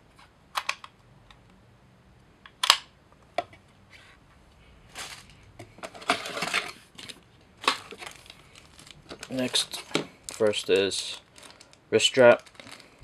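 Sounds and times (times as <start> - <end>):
plastic packaging rustling: 4.9 - 13.0.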